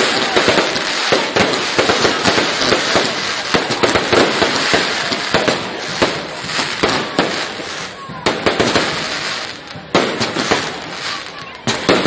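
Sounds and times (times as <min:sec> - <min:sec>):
fireworks crackling pops: 0:00.0 - 0:12.0.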